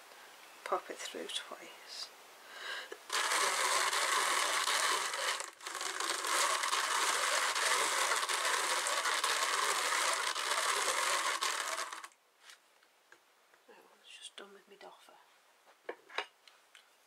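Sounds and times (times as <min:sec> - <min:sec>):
hand-cranked drum carder hissing: 0:03.1 - 0:12.1.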